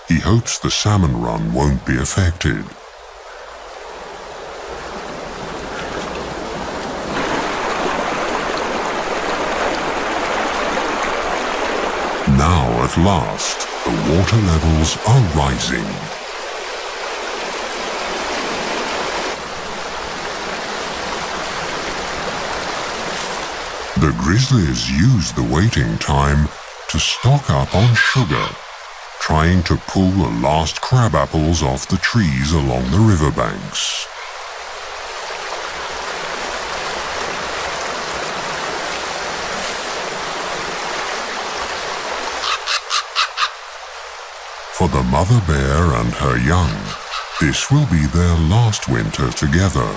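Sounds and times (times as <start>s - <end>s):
river water rushing over rocks: 2.8s - 24.0s, 34.4s - 43.0s
corvid calling: 24.8s - 29.8s, 42.4s - 43.6s, 44.8s - 49.9s.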